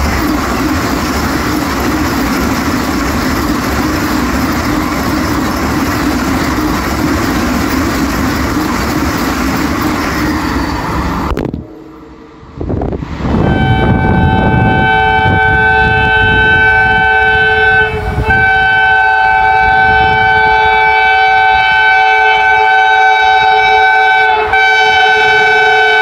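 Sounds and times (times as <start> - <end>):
train horn blast: 11.3 - 26.0.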